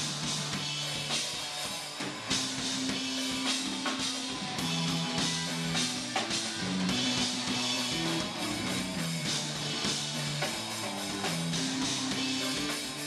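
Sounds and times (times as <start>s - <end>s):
bass guitar low notes: 0.0s - 13.0s
drum kit with cymbal hits: 0.0s - 13.0s
electric guitar: 0.0s - 13.0s.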